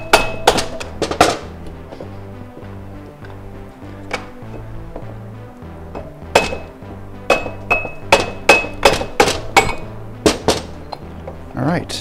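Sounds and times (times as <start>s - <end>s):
hammer striking metal flywheel: 0.0s - 1.4s, 6.0s - 10.7s.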